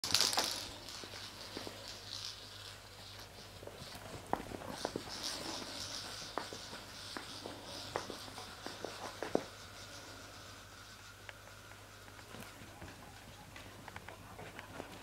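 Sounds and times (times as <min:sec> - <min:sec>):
dog paws pattering on hard floor: 0:00.0 - 0:10.0.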